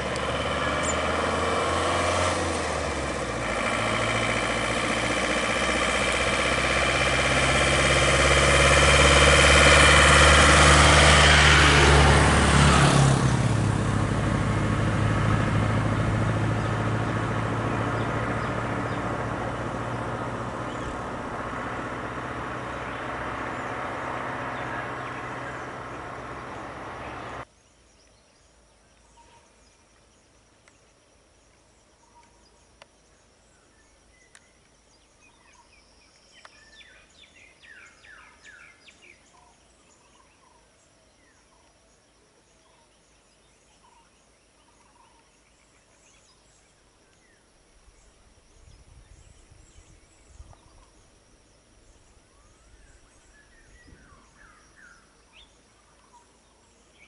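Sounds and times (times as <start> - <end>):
low rumbling: 0.0 - 27.4
car driving past: 0.0 - 27.5
bird calls: 0.6 - 1.1, 20.6 - 21.2, 22.6 - 57.0
high insect hum: 16.0 - 57.0.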